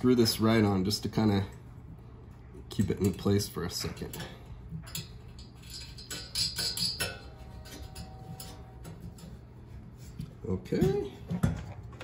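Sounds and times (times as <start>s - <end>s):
metal screw ticking and scraping: 4.0s - 9.6s.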